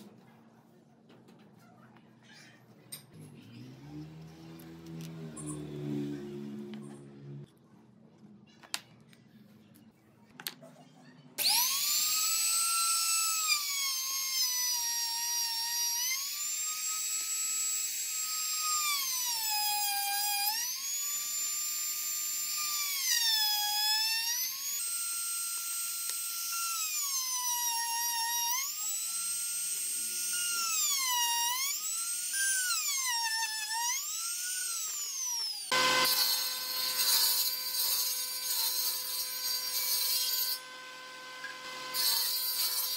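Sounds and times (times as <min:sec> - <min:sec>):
table saw cutting wood: 0:03.4 - 0:06.7, 0:11.4 - 0:42.9
high-pitched power tool whine: 0:11.4 - 0:42.9.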